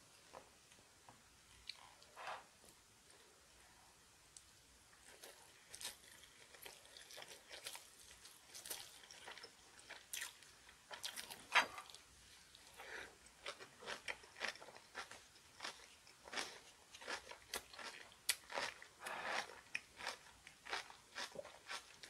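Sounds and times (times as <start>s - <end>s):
person chewing crunchy food: 5.0s - 22.0s.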